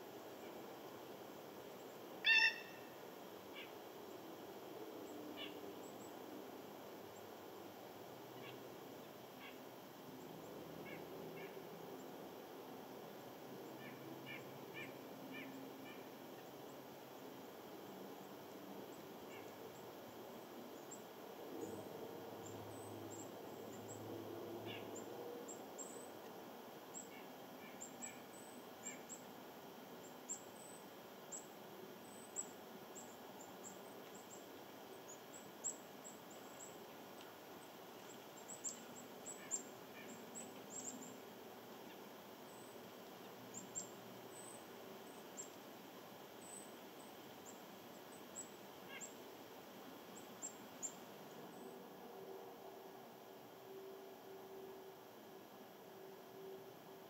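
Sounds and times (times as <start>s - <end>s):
small birds chirping: 37.6s - 41.3s.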